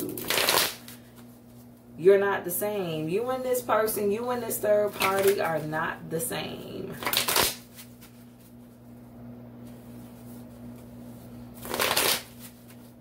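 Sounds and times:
cards being shuffled: 0:00.0 - 0:01.3, 0:04.9 - 0:05.4, 0:07.0 - 0:08.7, 0:09.6 - 0:13.0
steady low hum: 0:00.0 - 0:13.0.

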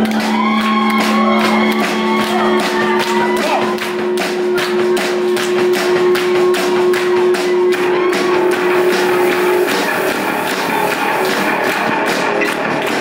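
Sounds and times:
fast drum beat: 0:00.0 - 0:13.0
live band playing: 0:00.1 - 0:13.0
long held note: 0:00.3 - 0:11.4.

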